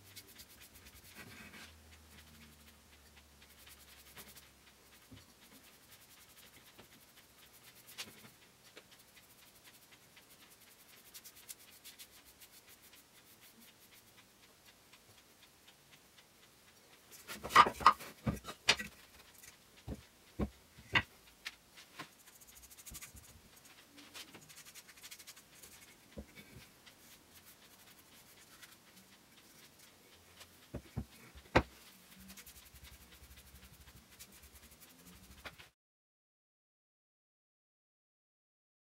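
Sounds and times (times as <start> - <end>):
brush rubbing on wood: 0.0 - 2.8, 3.4 - 8.4, 9.0 - 14.2, 17.1 - 21.0, 21.8 - 35.7.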